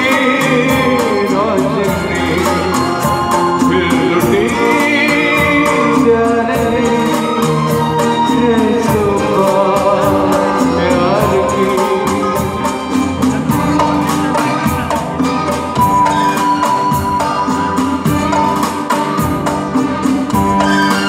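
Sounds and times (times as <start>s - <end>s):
person singing: 0.0s - 16.0s
quick percussion beat: 0.0s - 21.0s
sustained melodic instruments: 0.0s - 21.0s.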